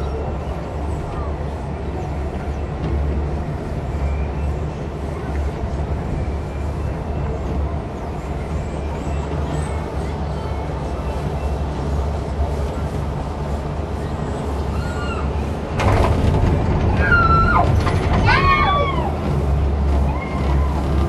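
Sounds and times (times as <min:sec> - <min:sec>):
gondola cabin rumbling: 0:00.0 - 0:21.0.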